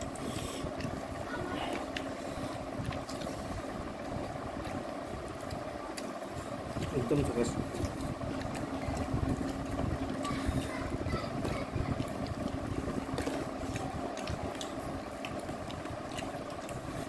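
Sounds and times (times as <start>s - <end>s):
clicks and taps from eating: 0.0s - 1.0s, 2.8s - 3.4s, 4.6s - 10.4s, 11.3s - 17.0s
low mechanical hum: 0.0s - 17.0s.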